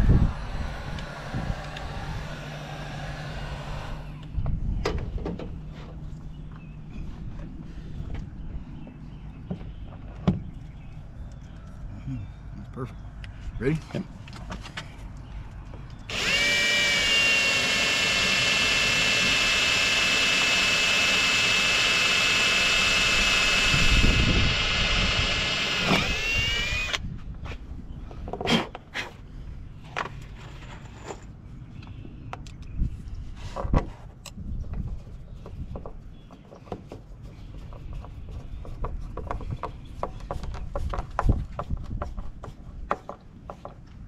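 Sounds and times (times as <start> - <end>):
cordless drill whining: 0.0 - 4.4, 16.1 - 27.0.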